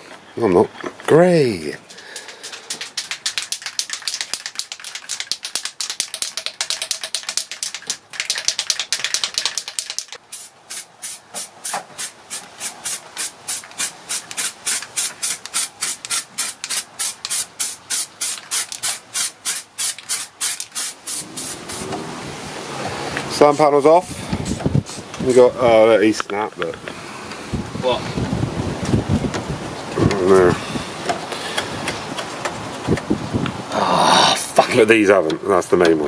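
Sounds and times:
spray can being shaken: 2.1 - 21.9, 23.3 - 25.4
spray paint spraying: 2.2 - 22.0, 23.3 - 25.4.

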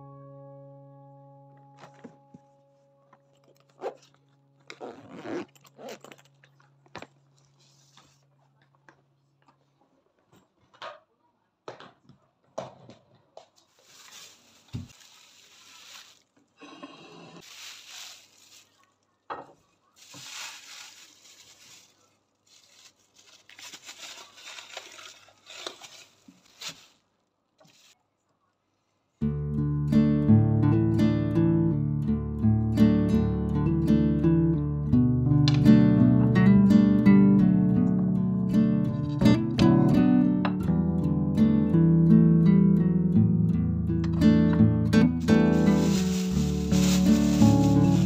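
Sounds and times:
plastic bag crinkling: 13.6 - 16.6, 17.4 - 28.0, 45.1 - 48.0.

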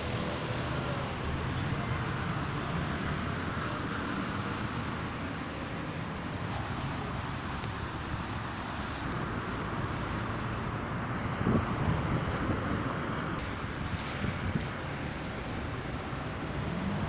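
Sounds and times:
road traffic rumble: 0.0 - 17.0
wind noise on microphone: 11.0 - 17.0.

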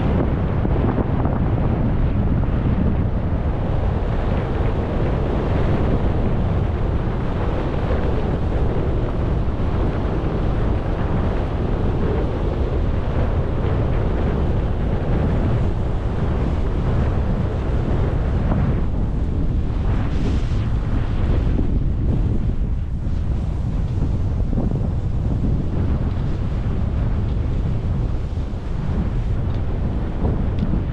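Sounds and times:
wind buffeting microphone: 0.0 - 30.9.

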